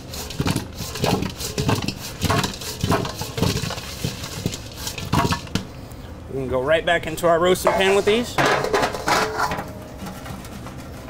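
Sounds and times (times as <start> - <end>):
potatoes rolling in metal bowl: 0.0 - 5.7, 7.5 - 11.0.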